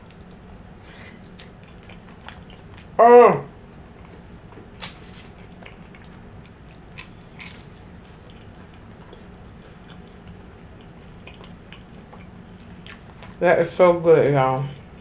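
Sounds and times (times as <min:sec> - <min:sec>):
person chewing: 0:00.0 - 0:03.0, 0:04.0 - 0:13.4
pie crust crackling: 0:04.5 - 0:10.2.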